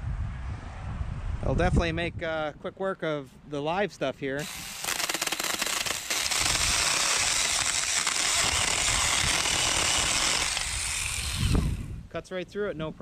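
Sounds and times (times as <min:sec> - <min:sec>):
mini chainsaw cutting wood: 0:04.4 - 0:12.0.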